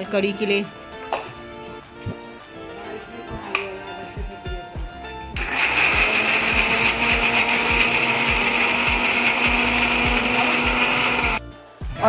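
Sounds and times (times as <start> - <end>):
mixer grinder running: 5.4 - 11.4.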